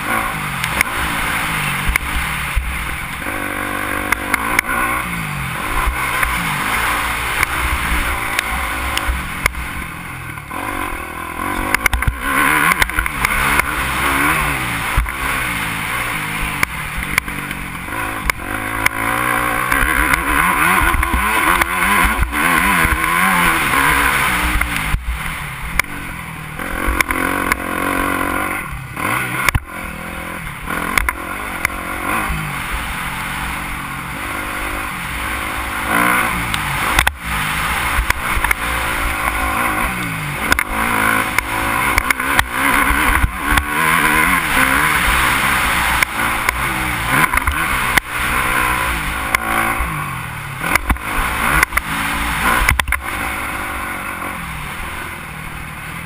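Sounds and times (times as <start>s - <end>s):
motorbike engine revving: 0.0s - 56.0s.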